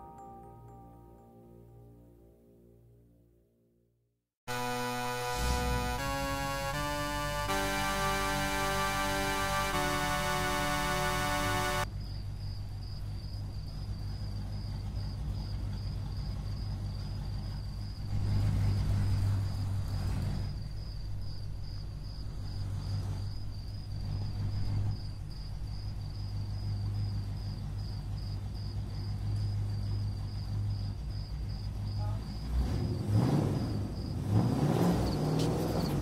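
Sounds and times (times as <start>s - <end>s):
low engine-like rumble: 6.7s - 34.4s.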